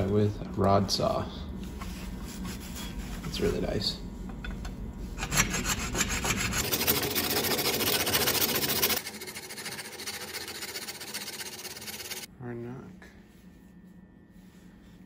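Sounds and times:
hacksaw rasping: 5.2 - 12.3.

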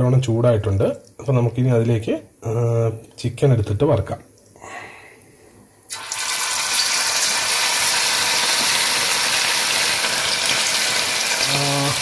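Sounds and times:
chicken deep-frying in oil: 5.9 - 12.0.

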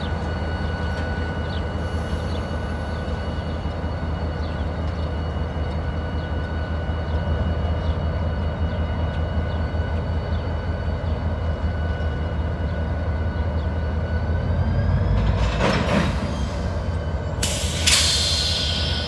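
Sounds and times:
locomotive engines rumbling: 0.0 - 19.0
brief hiss: 17.4 - 19.0.

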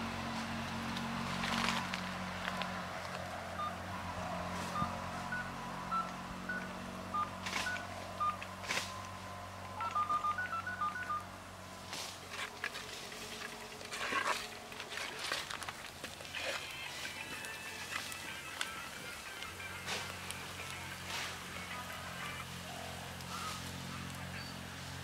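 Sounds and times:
steady low hum: 0.0 - 17.6
short high beeps: 4.7 - 8.4, 9.8 - 11.3.

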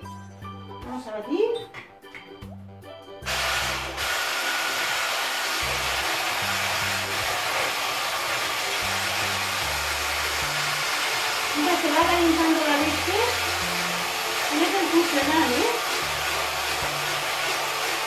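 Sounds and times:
stick blender running: 3.2 - 18.0.

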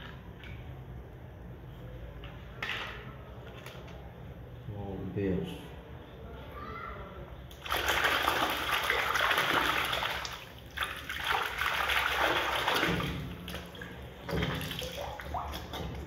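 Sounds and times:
water sloshing in a plastic tub: 7.5 - 16.0.

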